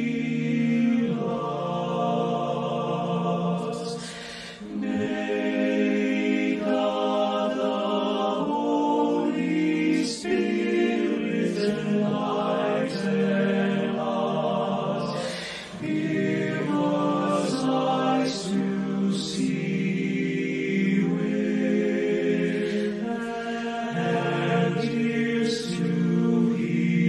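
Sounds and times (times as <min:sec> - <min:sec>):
male choir singing in harmony: 0:00.0 - 0:27.0.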